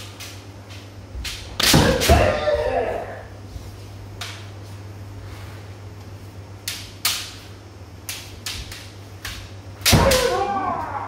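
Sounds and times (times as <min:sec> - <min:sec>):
bamboo swords clacking: 0:00.0 - 0:02.5, 0:06.6 - 0:11.0
low electrical hum: 0:00.0 - 0:11.0.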